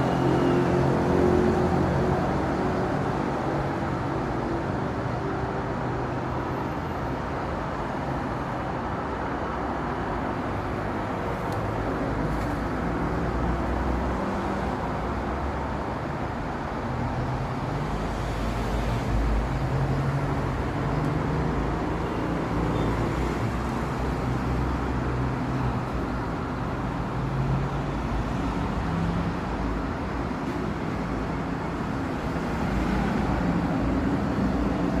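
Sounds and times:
vehicles passing: 0.0s - 35.0s.

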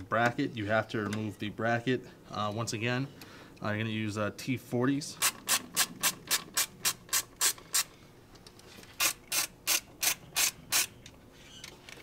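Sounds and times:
hand ratchet clicking: 5.2s - 7.9s, 9.0s - 10.9s.

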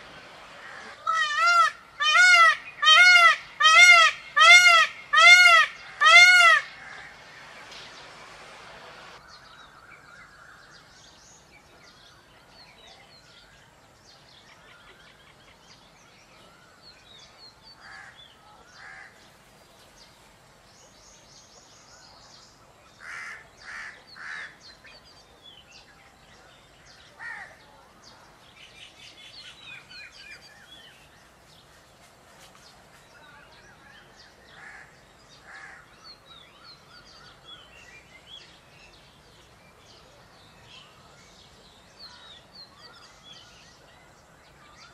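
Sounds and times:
peacock calling: 0.0s - 9.2s
songbirds chirping: 0.0s - 44.9s.

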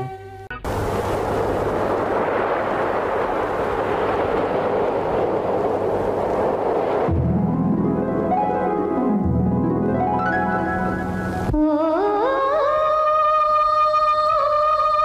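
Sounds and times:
steady rushing noise: 0.6s - 11.7s
piano music: 7.0s - 11.6s.

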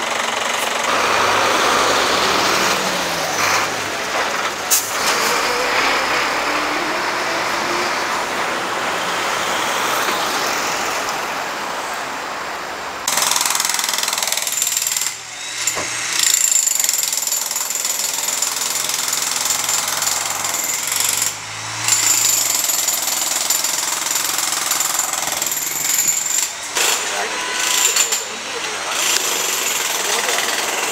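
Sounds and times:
truck engine driving past: 0.9s - 12.2s
jackhammer rattling with high whine: 13.1s - 30.9s.

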